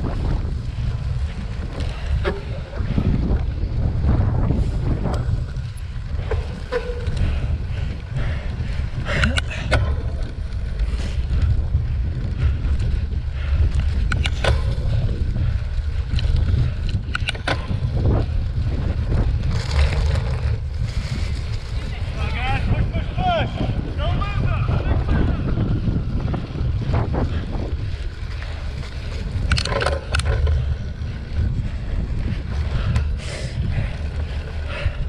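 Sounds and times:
wind rumble on microphone: 0.0s - 35.0s
sharp clicks and knocks: 14.0s - 14.8s, 16.1s - 17.8s, 29.4s - 30.6s.

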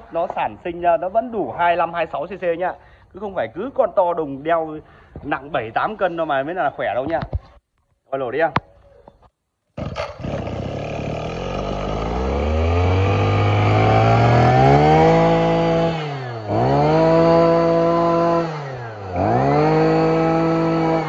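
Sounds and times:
brush cutter engine revving: 9.8s - 21.0s.

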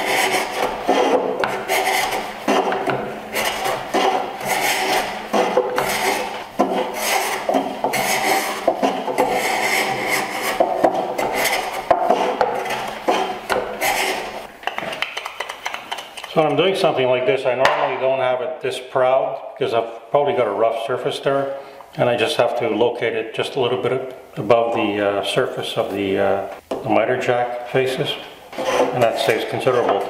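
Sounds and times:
block plane shaving end grain: 0.0s - 15.8s, 28.5s - 30.0s.

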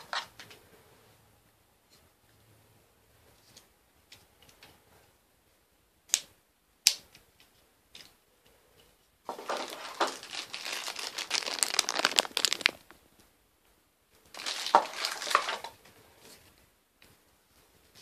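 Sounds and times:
packaging rustling and crinkling: 9.3s - 13.0s, 14.3s - 15.7s.

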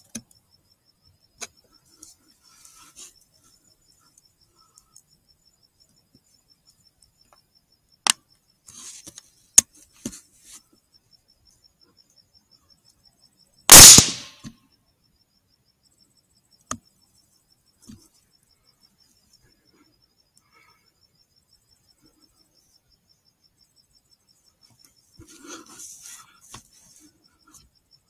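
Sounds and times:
crickets chirping: 0.0s - 28.0s
suppressed rifle shot: 13.7s - 14.5s.

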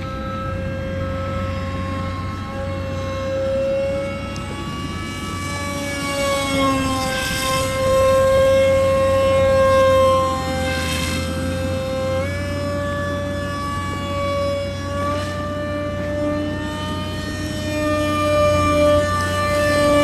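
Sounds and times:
model jet motor whining: 0.0s - 20.0s.

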